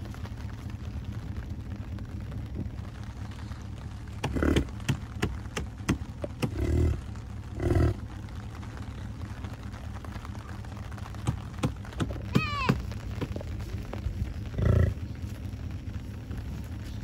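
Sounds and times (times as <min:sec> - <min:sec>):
bison grunting: 0:04.2 - 0:05.0, 0:06.2 - 0:08.2, 0:14.4 - 0:15.2.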